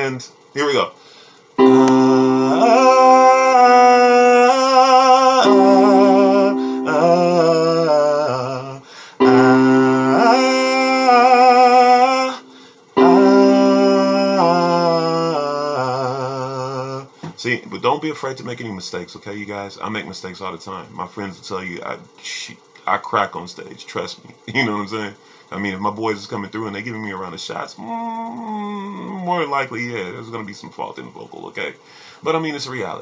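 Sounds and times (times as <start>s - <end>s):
electronic keyboard chords: 1.6s - 15.8s
man singing with vibrato: 1.6s - 17.2s.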